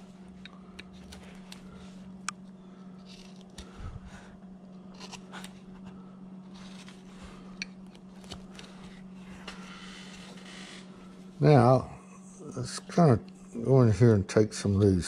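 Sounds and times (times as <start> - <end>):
steady low hum: 0.0 - 15.0
knife scraping wood: 3.0 - 3.8, 4.8 - 10.4.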